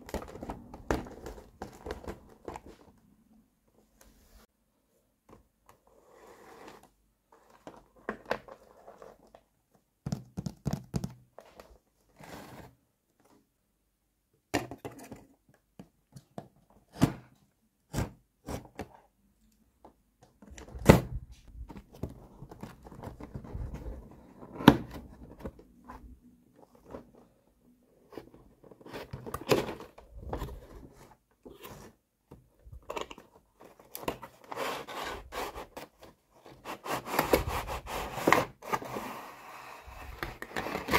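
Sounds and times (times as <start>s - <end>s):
knife scraping through cardboard: 34.4s - 35.9s.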